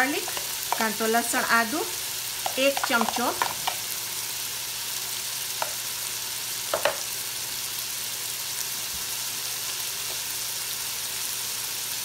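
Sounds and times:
oil sizzling in a pan: 0.0 - 12.0.

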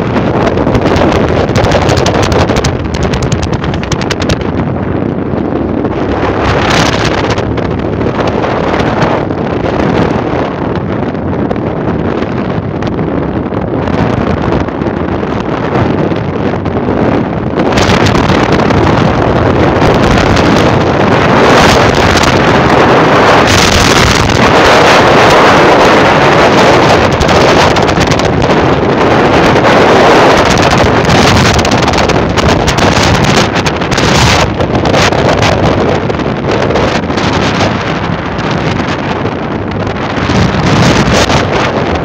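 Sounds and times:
wind buffeting microphone: 0.0 - 42.0.

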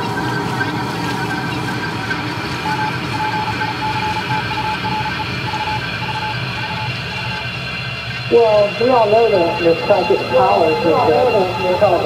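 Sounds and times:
short electronic beeps: 2.6 - 7.5, 8.2 - 12.0
steady rumbling background noise: 3.8 - 12.0.

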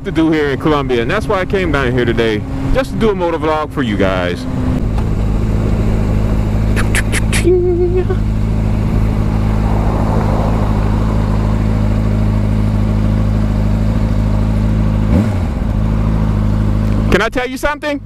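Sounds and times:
motorcycle throttle rev: 4.5 - 17.2.

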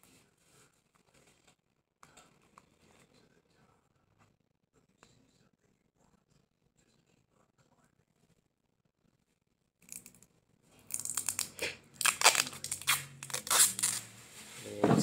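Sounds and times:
packing tape ripping off roll: 10.9 - 14.1.

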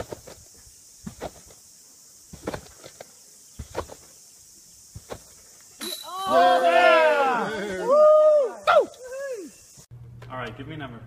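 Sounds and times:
trampoline landing thuds: 0.0 - 1.6, 2.2 - 4.2, 4.9 - 6.0.

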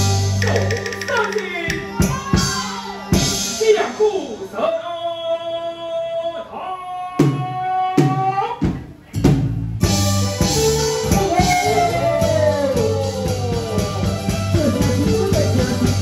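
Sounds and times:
percussion strokes and crash: 0.0 - 4.5
band playing sliding melody: 0.0 - 4.6, 8.9 - 16.0.

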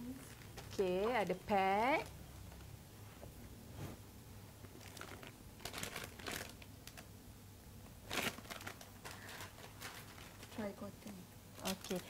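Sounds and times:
plastic packaging crinkling: 0.1 - 2.7, 4.6 - 7.1, 8.0 - 12.0.

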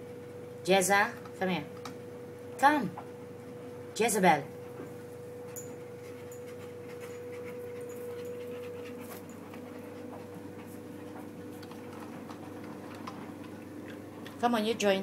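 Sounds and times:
faint hum: 0.0 - 15.0
dog panting: 5.6 - 13.2.

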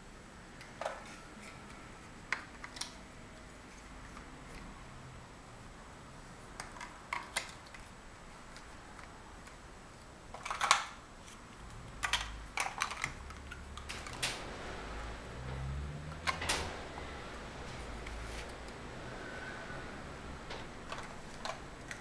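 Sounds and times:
plastic blocks clicking together: 6.6 - 7.9, 10.3 - 11.0, 11.8 - 14.3.

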